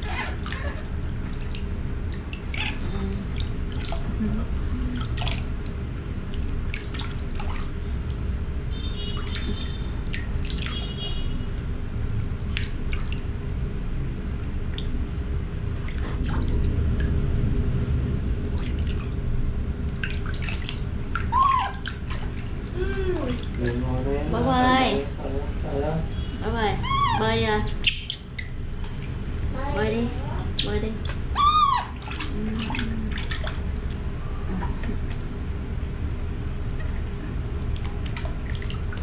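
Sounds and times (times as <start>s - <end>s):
hands scooping water: 0.0s - 8.2s, 30.9s - 34.1s
water splashing in a plastic tub: 0.0s - 17.1s, 18.5s - 35.9s, 36.9s - 39.0s.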